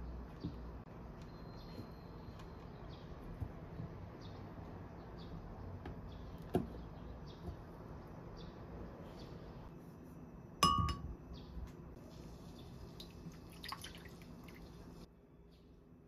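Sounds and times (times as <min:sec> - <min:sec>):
glass cup clinking: 0:10.6 - 0:11.1
liquid pouring into glass cup: 0:13.0 - 0:14.7.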